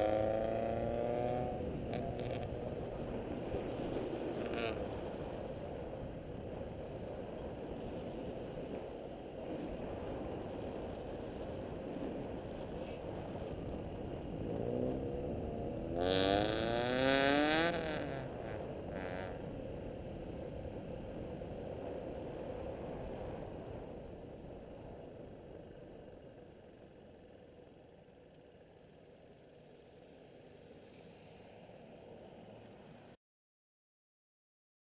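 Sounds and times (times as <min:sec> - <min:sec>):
motorcycle engine: 0:00.0 - 0:04.8, 0:14.2 - 0:19.4.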